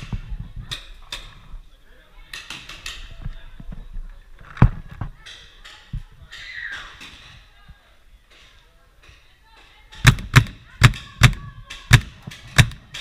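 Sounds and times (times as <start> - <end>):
faint voices: 0.0 - 13.0
paintball markers firing: 9.9 - 13.0.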